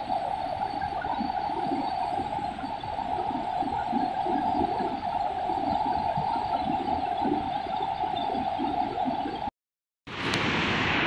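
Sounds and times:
waterfall rushing: 0:10.1 - 0:11.0.

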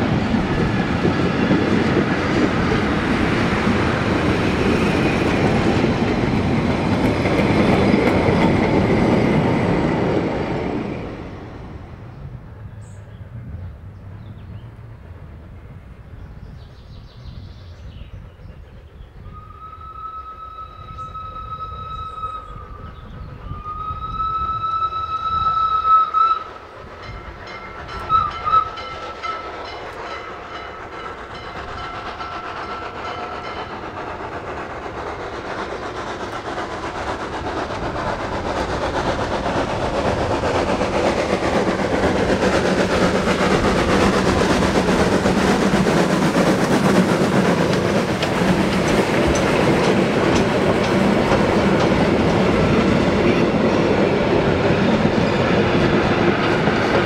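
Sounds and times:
train running noise: 0:00.0 - 0:57.0
steam whistle blasts: 0:19.2 - 0:26.6, 0:28.1 - 0:28.8.

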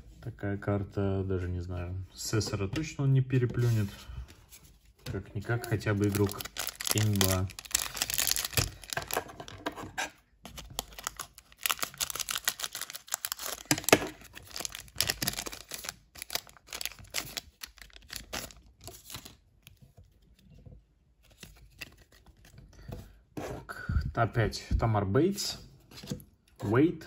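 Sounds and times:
foil wrapper crinkling: 0:05.6 - 0:09.2, 0:10.7 - 0:19.4
wrapper being torn open: 0:05.6 - 0:09.2, 0:10.7 - 0:19.4.

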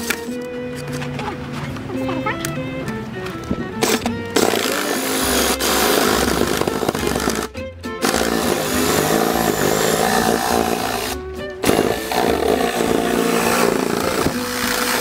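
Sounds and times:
background music: 0:00.0 - 0:15.0
jigsaw cutting wood: 0:03.8 - 0:15.0.

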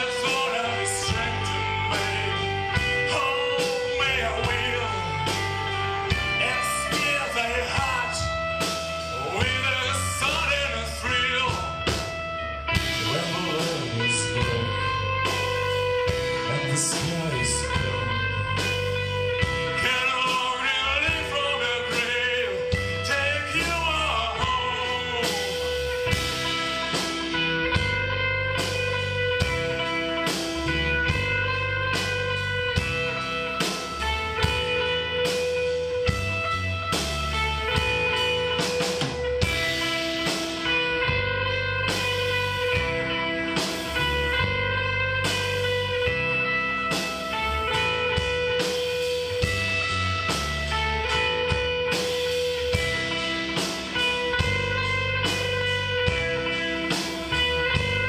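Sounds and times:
man singing: 0:00.0 - 0:12.2, 0:12.8 - 0:27.9
drum kit beat: 0:00.0 - 0:58.0
electric guitar: 0:00.0 - 0:58.0.

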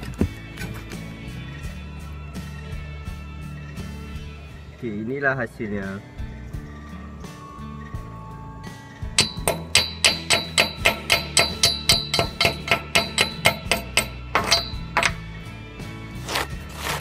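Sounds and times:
chipping hammer rapping on metal: 0:09.2 - 0:15.2.

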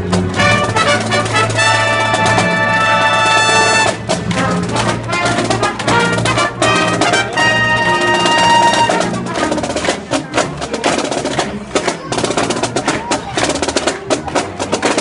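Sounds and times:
brass march music with drums: 0:00.0 - 0:15.0.

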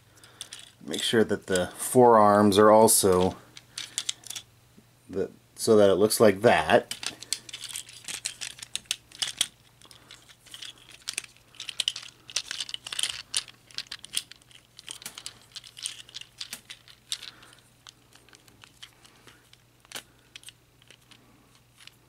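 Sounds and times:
plastic toy parts clicking: 0:03.0 - 0:04.4, 0:06.9 - 0:22.0
handling rustle: 0:06.8 - 0:22.0.

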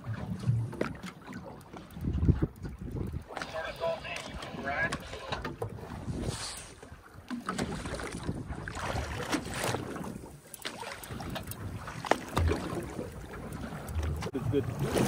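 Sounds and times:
water lapping against hull: 0:00.0 - 0:15.0
wind buffeting microphone: 0:01.8 - 0:07.0.

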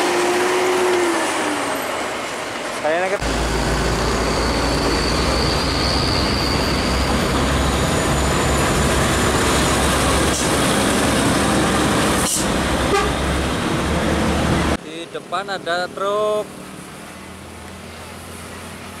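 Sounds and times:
diesel truck driving past: 0:00.0 - 0:14.8
tyre and road noise: 0:00.0 - 0:19.0.

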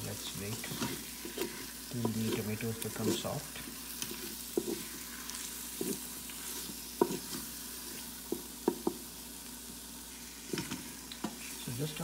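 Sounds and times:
onions frying with sizzle: 0:00.0 - 0:12.0
wooden spatula knocking on pot: 0:08.3 - 0:09.0.

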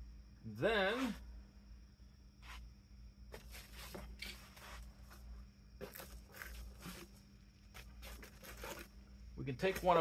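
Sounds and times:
faint steady hum: 0:00.0 - 0:10.0
rummaging in cardboard box: 0:03.4 - 0:08.9.

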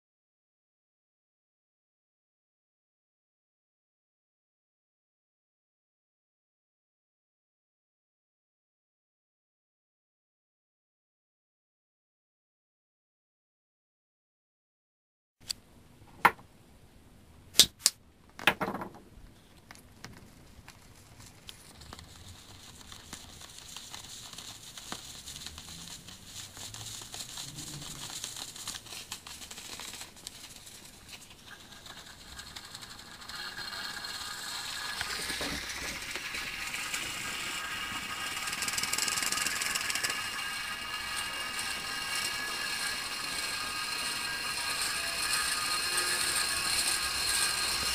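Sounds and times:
steam hissing from jets: 0:33.4 - 0:47.9.

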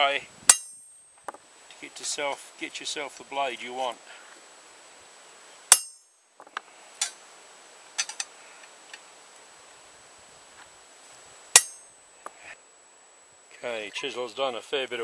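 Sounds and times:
hammer striking chisel on metal: 0:00.5 - 0:01.0, 0:05.7 - 0:06.1, 0:11.6 - 0:11.8
light chisel clinks: 0:05.7 - 0:06.2.

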